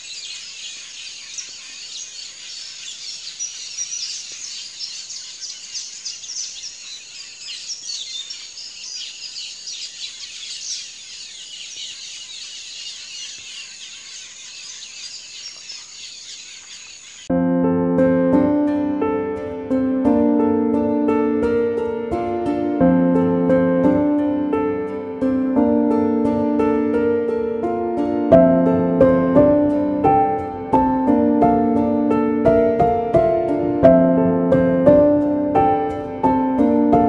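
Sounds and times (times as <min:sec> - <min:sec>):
chirping insects and birds: 0:00.0 - 0:17.3.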